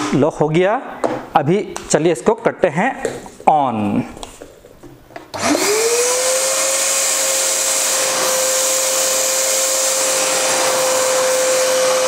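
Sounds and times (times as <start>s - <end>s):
vacuum cleaner motor whining: 5.3s - 12.0s.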